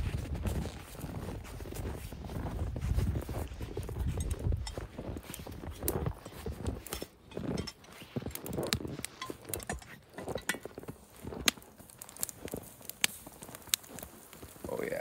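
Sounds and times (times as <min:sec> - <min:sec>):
footsteps crunching in snow: 0:00.0 - 0:15.0
metal lid clinking: 0:06.2 - 0:10.7.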